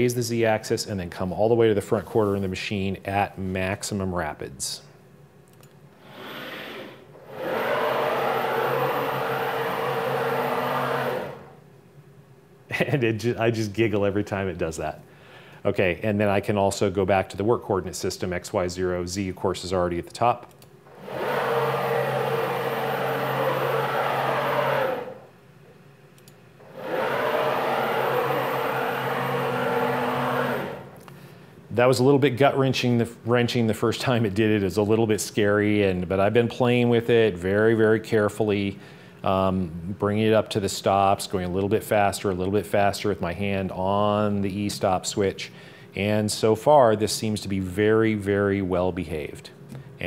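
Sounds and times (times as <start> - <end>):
cnc machine motors whirring: 6.2 - 11.6, 20.9 - 25.3, 26.6 - 31.1.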